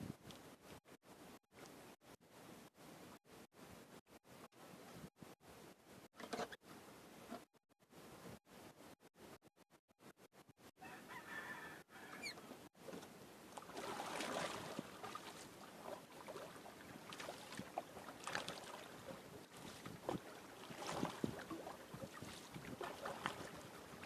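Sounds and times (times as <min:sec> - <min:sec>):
water splashing against canoe: 0:12.8 - 0:24.0.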